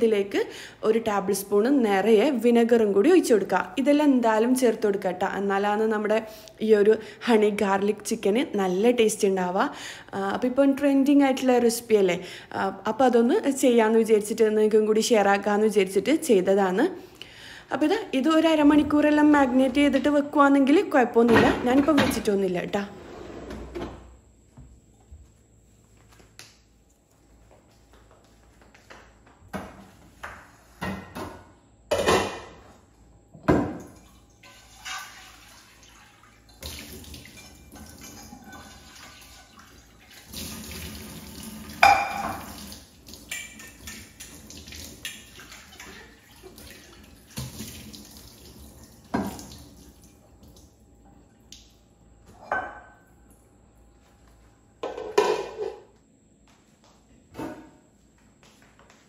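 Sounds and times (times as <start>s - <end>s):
tap water running into sink: 34.4s - 50.6s.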